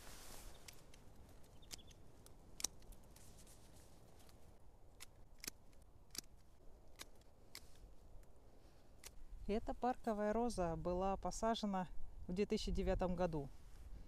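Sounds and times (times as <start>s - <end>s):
pruning shears snipping: 0.6s - 3.6s, 4.2s - 8.3s, 8.9s - 9.2s.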